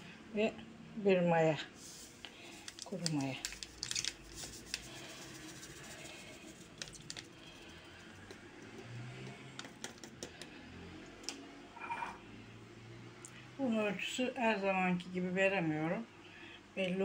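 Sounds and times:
foil sachet clicks and crinkles: 2.4 - 7.6.

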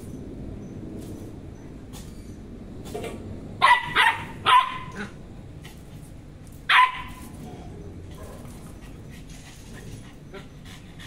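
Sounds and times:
dog barking: 3.6 - 5.2, 6.7 - 7.2.

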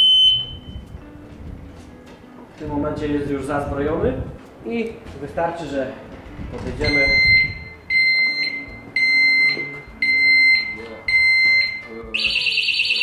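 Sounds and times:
short high beeps: 0.0 - 0.8
loud warbling alarm: 12.2 - 13.0.

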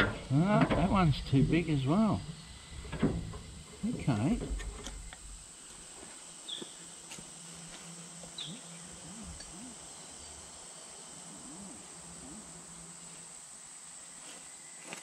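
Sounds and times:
insects droning: 0.0 - 15.0
bird chirp: 6.4 - 6.9, 8.2 - 13.1.

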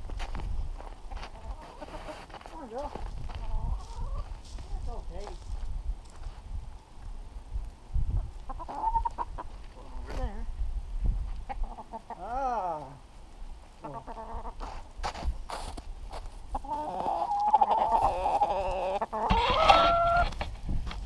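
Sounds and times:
hen clucking and squawking: 1.1 - 2.4, 3.3 - 4.4, 8.2 - 10.0, 11.4 - 12.8, 13.8 - 14.8, 16.5 - 20.6.

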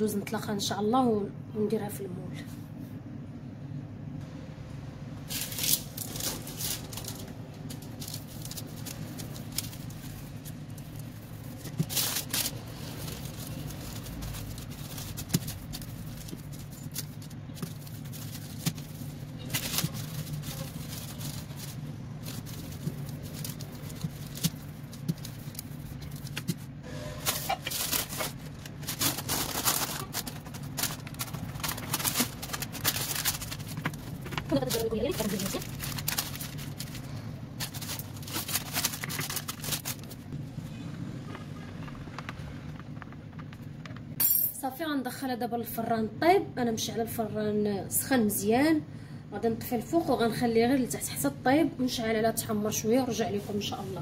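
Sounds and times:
steady low hum: 0.0 - 54.0
parchment paper crinkling: 5.3 - 40.3.

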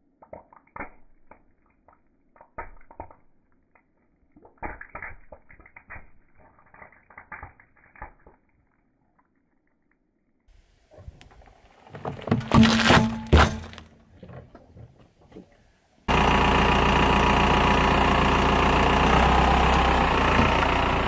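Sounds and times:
tyre crushing plastic tubes: 11.8 - 15.0.

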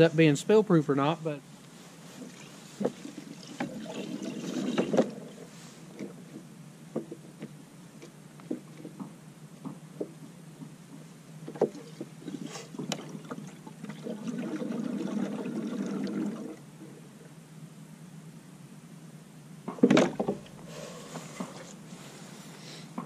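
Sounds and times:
fuel running into tank: 2.2 - 6.2, 11.7 - 16.6.

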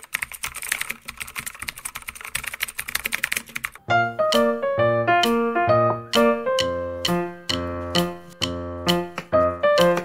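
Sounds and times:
bright piano music: 3.8 - 10.0.

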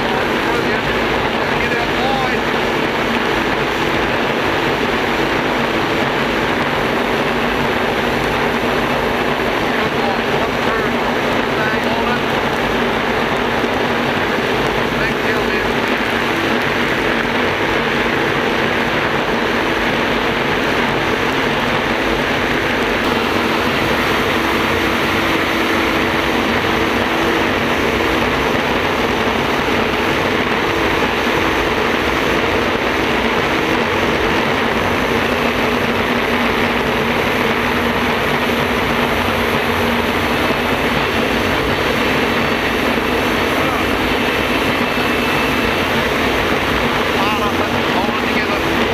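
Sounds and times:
jet boat turbine engine roaring: 0.0 - 48.9
wind noise: 0.0 - 48.9.

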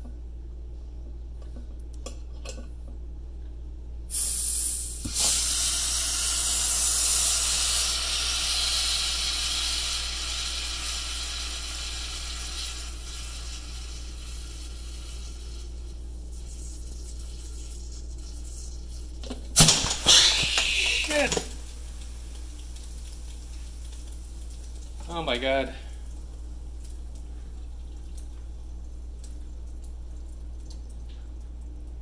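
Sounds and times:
gas hissing from bottle: 4.1 - 15.6, 19.6 - 22.2.

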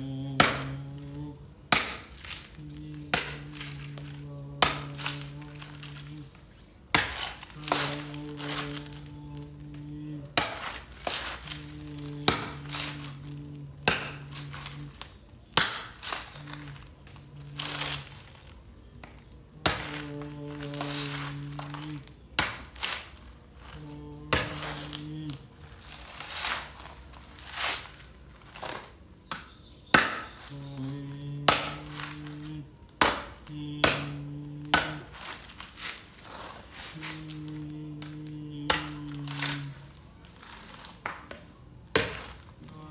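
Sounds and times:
held low tone: 0.0 - 1.6, 2.5 - 6.8, 7.5 - 10.4, 11.1 - 15.1, 16.2 - 22.2, 23.6 - 25.8, 30.4 - 35.2, 36.8 - 40.0
chili stems snapping: 0.2 - 6.3, 6.9 - 42.9.

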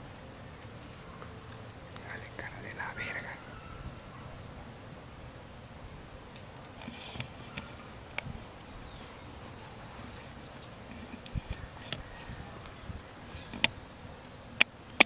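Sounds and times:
faint ticks: 0.6 - 2.9, 6.2 - 8.8, 10.0 - 15.0.

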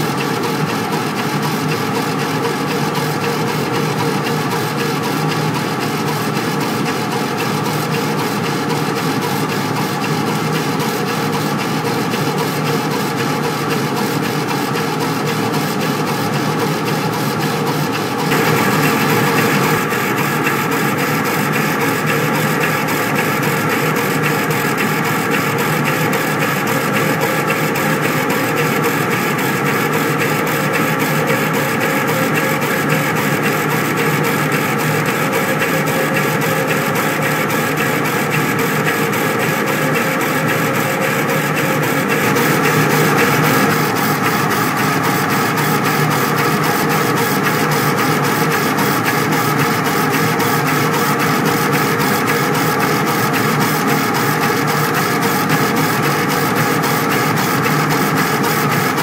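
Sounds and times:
steady mechanical drone: 18.2 - 23.3, 24.3 - 47.2.

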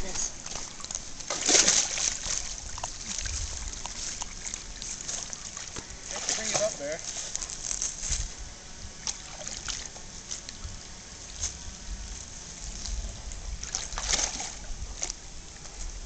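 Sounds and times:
dog wading through water: 0.0 - 7.8, 9.0 - 10.6, 12.5 - 16.0.

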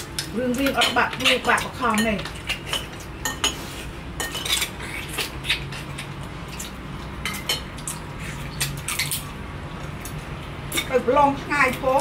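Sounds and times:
dishes and utensils clinking: 0.0 - 9.3.

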